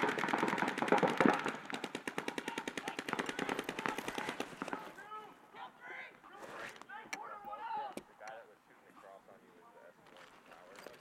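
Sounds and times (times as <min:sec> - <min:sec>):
paintball markers firing: 0:00.0 - 0:05.0.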